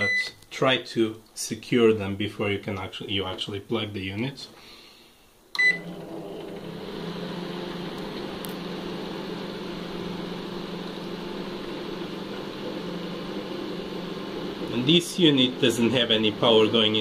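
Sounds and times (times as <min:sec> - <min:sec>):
cooling fan motor humming: 0:05.7 - 0:17.0.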